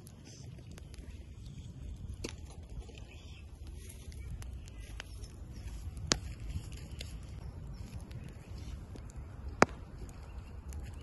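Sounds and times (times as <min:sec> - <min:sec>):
wood fire crackling: 0:00.0 - 0:11.0
sharp pops of fire: 0:02.0 - 0:02.7, 0:05.9 - 0:07.2, 0:07.9 - 0:11.0.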